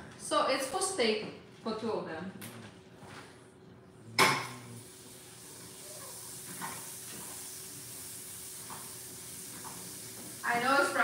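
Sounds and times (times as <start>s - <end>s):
butter sizzling in frying pan: 4.8s - 11.0s.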